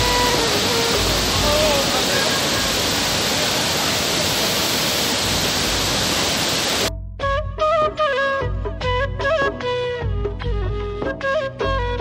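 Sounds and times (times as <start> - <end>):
waterfall roaring: 0.0 - 6.9.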